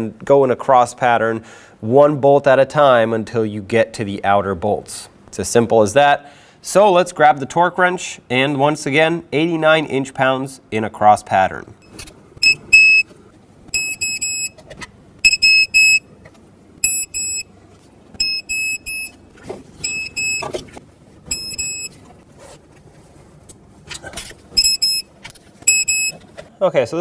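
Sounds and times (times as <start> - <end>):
high-pitched torque wrench beeps: 11.8 - 13.0, 13.8 - 14.6, 15.2 - 16.0, 16.8 - 17.5, 18.2 - 19.2, 19.8 - 20.5, 21.3 - 21.9, 24.6 - 25.1, 25.7 - 26.2.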